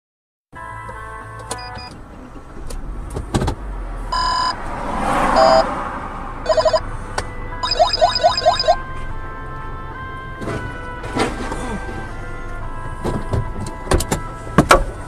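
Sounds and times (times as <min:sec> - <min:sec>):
vehicle passing close by: 0:03.6 - 0:06.8
electronic beeps: 0:05.4 - 0:05.6, 0:06.5 - 0:06.8, 0:07.6 - 0:08.8.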